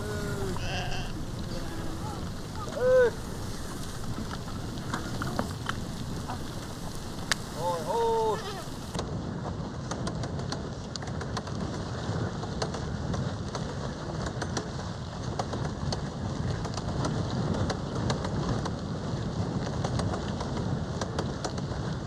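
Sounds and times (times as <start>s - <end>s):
crackles and clicks: 0.0s - 9.0s
wind buffeting microphone: 0.0s - 22.0s.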